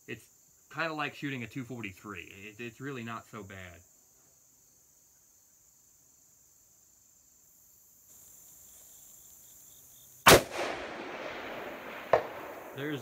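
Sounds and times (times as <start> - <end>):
high-pitched insect noise: 0.0 - 10.4
rifle shot with echo: 10.3 - 13.0.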